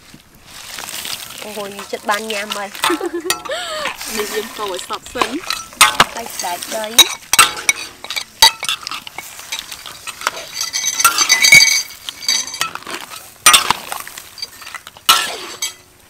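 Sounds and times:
light sizzle of frying: 0.0s - 16.0s
metal spatula scraping wok: 0.8s - 15.9s.

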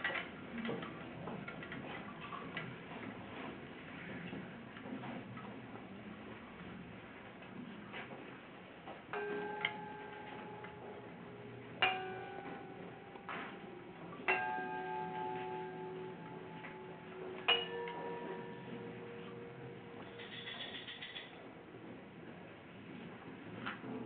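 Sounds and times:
hanging metal objects ringing: 9.1s - 21.5s.

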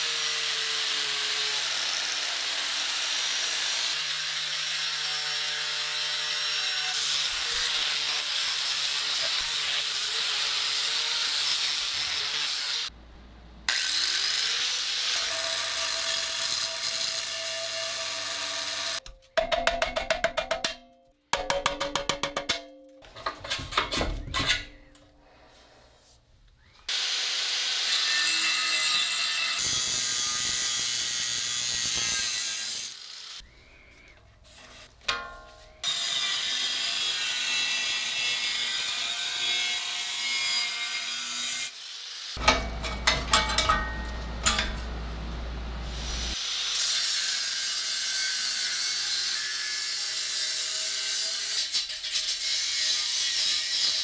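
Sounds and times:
angle grinder on steel: 0.0s - 12.9s, 13.7s - 19.0s, 26.9s - 33.4s, 35.8s - 45.0s, 45.8s - 54.0s.

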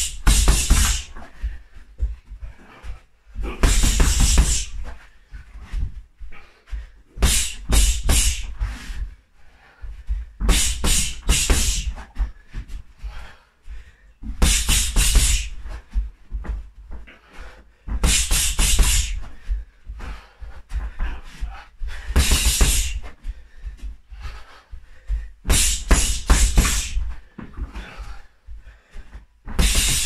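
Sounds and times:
gloves punching a bag: 0.0s - 1.2s, 3.4s - 4.9s, 7.2s - 8.6s, 10.4s - 12.1s, 14.4s - 15.7s, 17.9s - 19.2s, 22.1s - 23.2s, 25.4s - 27.1s, 29.5s - 30.0s.

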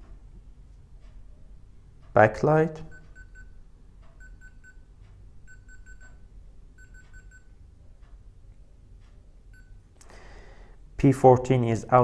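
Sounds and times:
thermostat touch-key beeps: 2.9s - 3.6s, 4.2s - 7.6s, 9.5s - 9.8s.

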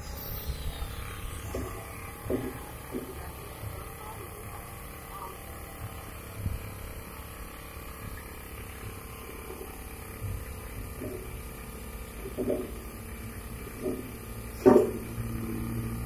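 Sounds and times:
mechanical hum: 0.0s - 16.0s
faint muffled voices: 1.6s - 7.4s
dull low thumps: 5.4s - 15.4s.

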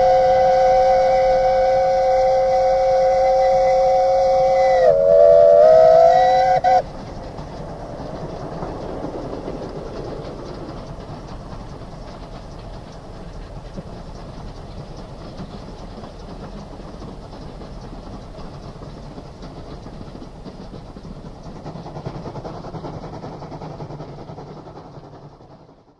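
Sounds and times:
steam locomotive whistle: 0.0s - 8.1s
steam train rumbling: 0.0s - 25.9s.

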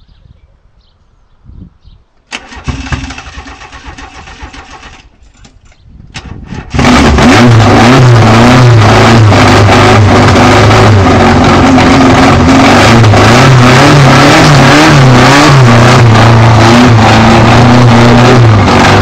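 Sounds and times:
starter cranking: 2.3s - 6.8s
car engine running loud: 6.2s - 19.0s.

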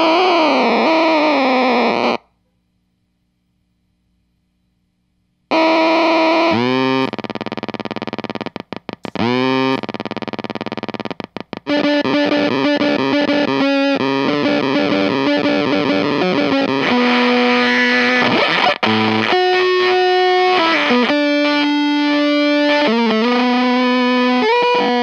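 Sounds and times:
distorted electric guitar notes: 0.0s - 2.2s, 5.5s - 25.0s
buzzy fuzz pedal drone: 0.0s - 2.3s, 5.5s - 25.0s.

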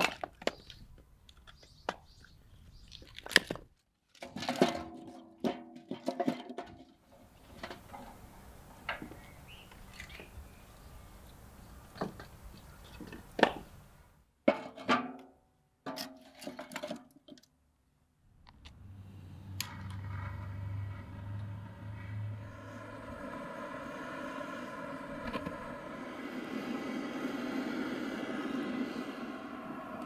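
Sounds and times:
blowtorch hissing: 22.4s - 30.0s.

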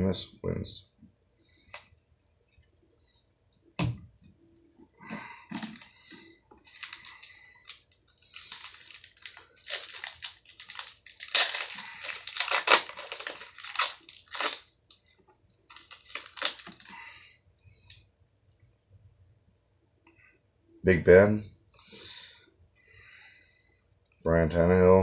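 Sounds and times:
foil wrapper crinkling: 5.5s - 17.1s.

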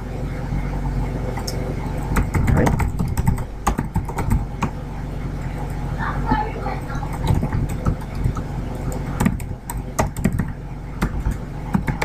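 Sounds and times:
computer keyboard typing: 1.5s - 4.8s, 6.9s - 12.0s.

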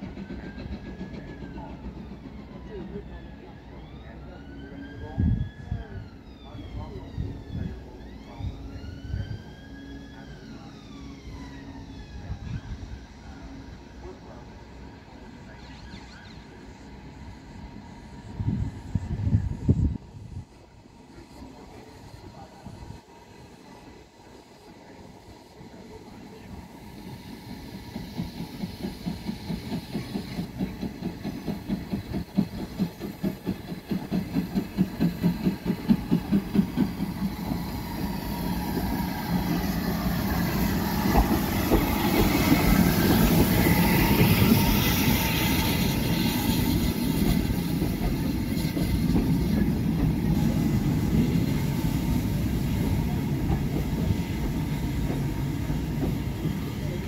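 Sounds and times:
steam locomotive exhaust beats: 0.0s - 3.5s, 21.1s - 57.0s
wheels on rail: 25.8s - 57.0s
coaches clicking over rail joints: 38.5s - 57.0s.

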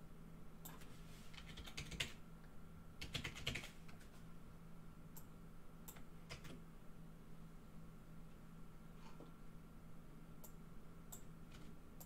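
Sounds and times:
faint steady hum: 0.0s - 12.0s
computer keyboard typing: 1.4s - 2.2s, 3.0s - 3.8s, 5.9s - 6.6s.

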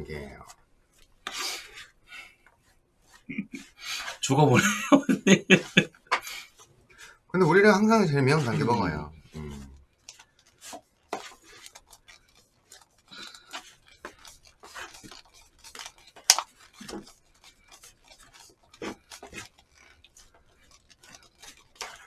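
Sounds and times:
takeout containers handled: 10.0s - 22.0s.

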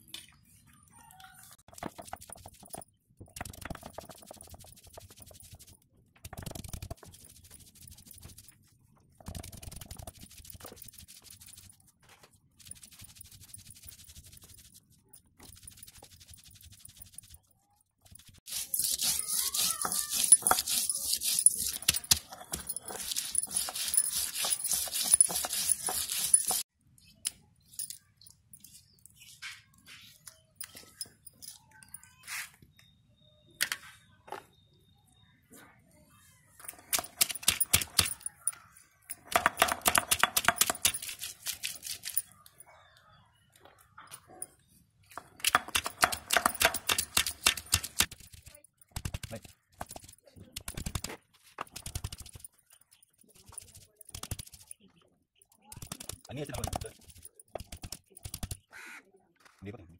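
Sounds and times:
stone roller grinding on stone: 18.5s - 26.7s.

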